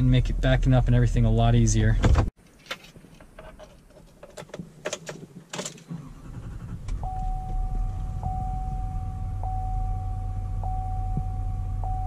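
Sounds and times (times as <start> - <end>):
clicks and knocks from controls: 2.0 - 5.9
diesel engine rumble: 5.9 - 12.0
steady electronic tone: 7.0 - 12.0.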